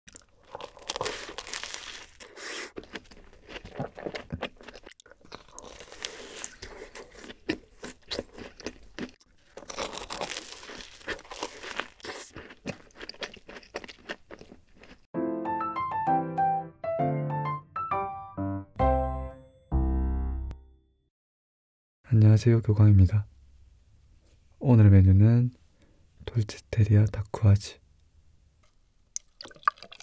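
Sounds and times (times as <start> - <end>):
crisp crunching: 0.1 - 15.0
chewing cookies close up: 0.1 - 15.1.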